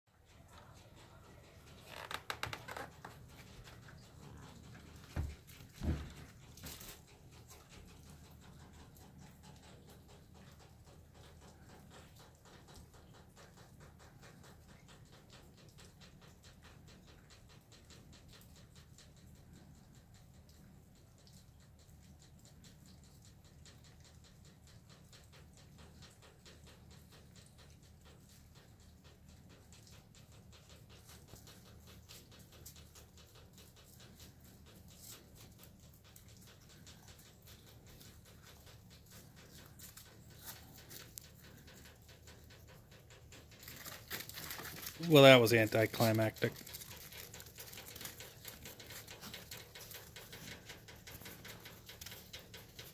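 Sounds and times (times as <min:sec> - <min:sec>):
faint irregular ticking: 0:00.1 - 0:52.9
footsteps on wooden deck: 0:04.9 - 0:06.8
dull thumps: 0:05.1 - 0:06.5
dog gnawing on chew toy: 0:30.6 - 0:45.2, 0:46.3 - 0:52.5.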